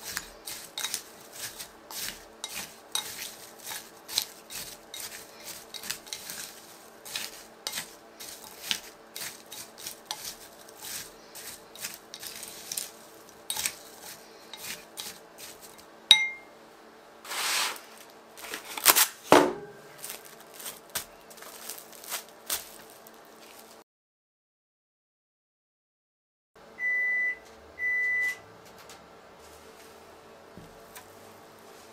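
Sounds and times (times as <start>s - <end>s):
utensils clinking against dishes: 0.0s - 16.5s
low steady hum: 0.0s - 17.2s.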